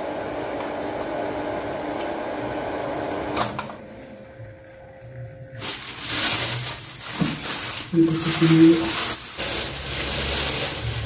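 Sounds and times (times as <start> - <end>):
water pump humming: 0.0 - 11.0
plastic bag rustling: 5.5 - 11.0.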